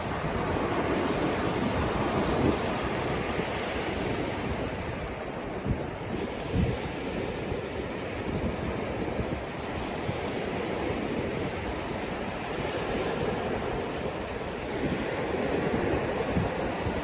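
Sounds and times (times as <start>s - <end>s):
waves breaking on shore: 0.0s - 17.0s
wind buffeting microphone: 0.0s - 17.0s.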